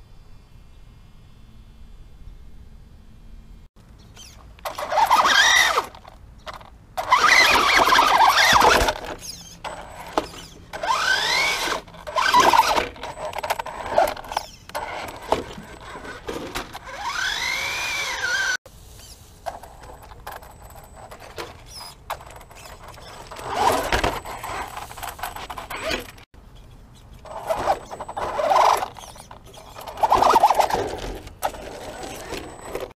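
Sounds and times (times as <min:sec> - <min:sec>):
electric motor whining: 0:04.2 - 0:06.1, 0:07.0 - 0:19.2, 0:27.3 - 0:32.9.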